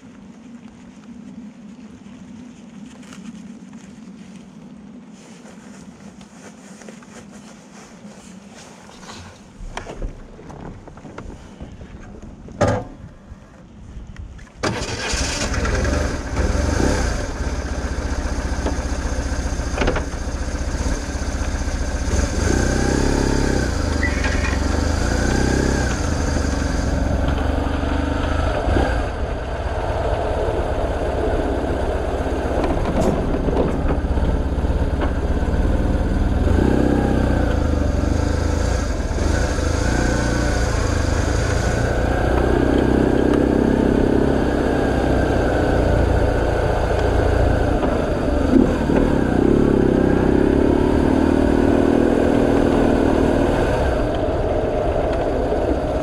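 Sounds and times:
motorcycle engine running: 15.1 - 56.0.

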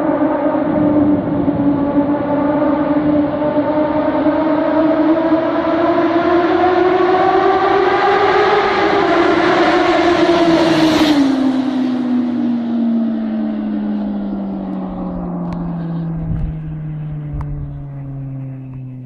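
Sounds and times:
motorbike engine at high revs: 0.0 - 19.0.

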